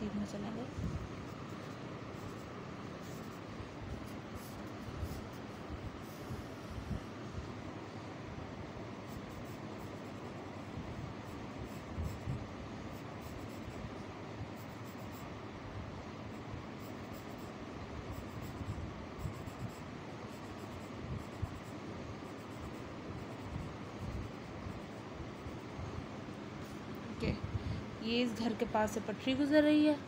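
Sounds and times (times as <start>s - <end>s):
steady background hiss: 0.0s - 30.0s
pencil scratching on paper: 1.0s - 7.1s, 9.0s - 12.3s, 12.9s - 13.9s, 14.5s - 15.3s, 16.3s - 25.8s.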